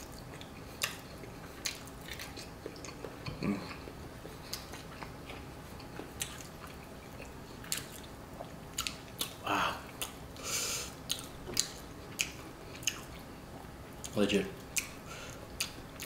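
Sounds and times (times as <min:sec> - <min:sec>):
person chewing food: 0:00.0 - 0:16.0
wet smacking mouth sounds: 0:00.1 - 0:05.4, 0:14.0 - 0:15.0.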